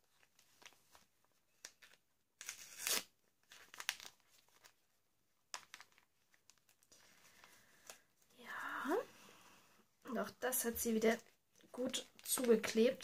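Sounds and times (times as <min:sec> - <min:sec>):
wrapping paper crinkling and tearing: 0:00.0 - 0:04.9, 0:05.5 - 0:07.9, 0:11.8 - 0:13.0.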